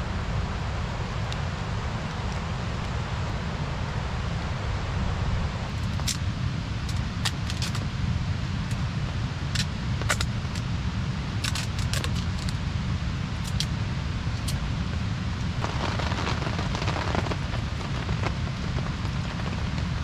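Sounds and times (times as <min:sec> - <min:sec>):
stove low rumble: 0:00.0 - 0:20.0
kindling crackling: 0:11.4 - 0:12.6, 0:13.4 - 0:20.0.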